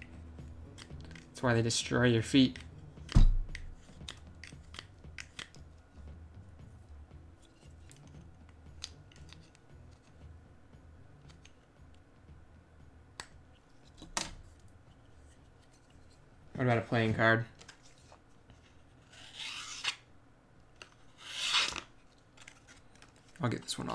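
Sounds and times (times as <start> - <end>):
knife blade scraping plastic: 19.0 - 20.0, 20.8 - 23.4.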